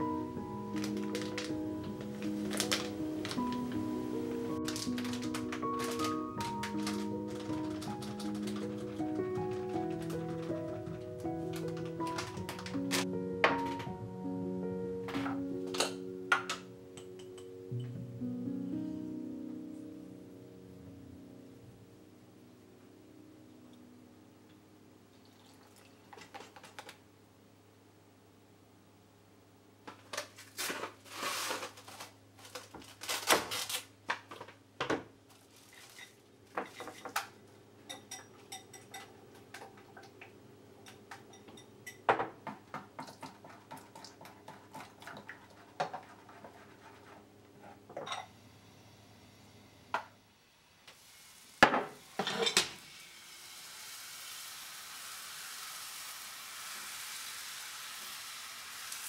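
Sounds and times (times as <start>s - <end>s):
batter sizzling in pan: 50.4s - 59.0s.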